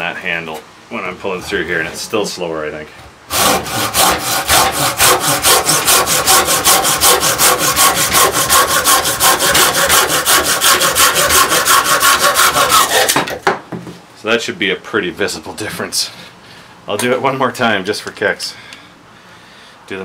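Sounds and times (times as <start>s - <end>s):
hand saw cutting wood: 3.3s - 13.4s.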